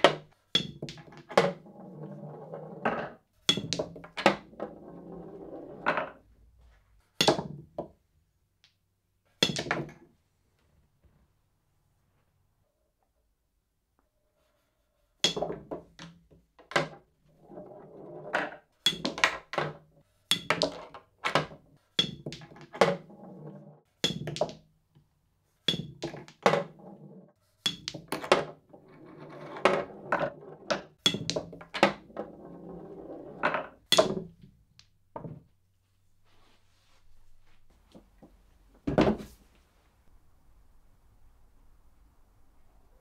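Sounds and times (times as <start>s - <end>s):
balls thunking into holes: 0.0s - 2.2s, 2.8s - 6.2s, 7.2s - 8.0s, 9.4s - 10.0s, 15.2s - 24.7s, 25.7s - 27.0s, 27.6s - 35.5s
billiard balls clicking: 0.0s - 6.2s, 15.2s - 24.7s, 25.7s - 35.4s
balls rolling rumble: 1.0s - 3.2s, 3.8s - 6.3s, 16.8s - 19.9s, 22.3s - 23.8s, 26.0s - 27.3s, 28.0s - 34.4s.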